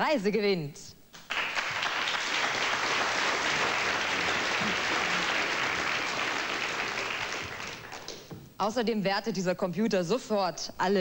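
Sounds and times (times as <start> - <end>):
audience applauding: 1.2 - 8.4.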